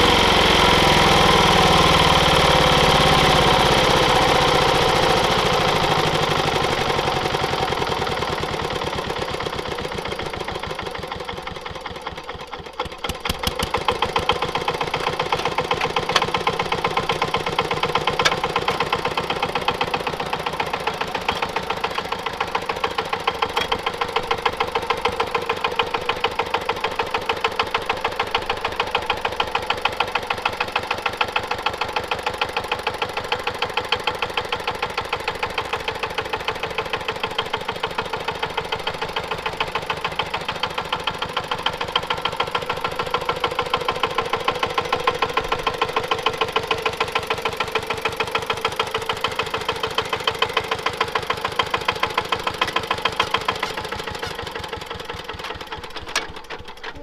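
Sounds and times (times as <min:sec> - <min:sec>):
diesel engine knocking: 0:00.0 - 0:57.0.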